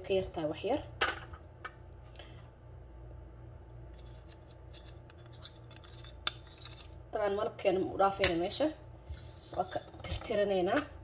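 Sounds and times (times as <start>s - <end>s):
low steady hum: 0.0s - 11.0s
spoon scraping ceramic dish: 9.1s - 10.4s.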